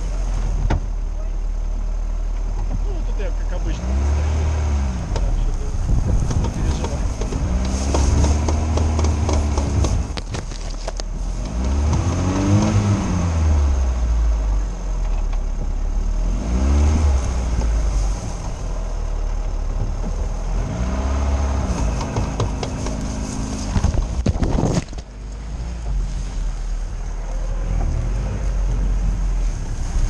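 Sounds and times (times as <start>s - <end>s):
car engine revving: 0.0s - 30.0s
knocks and rattles: 5.1s - 12.8s, 21.7s - 25.2s.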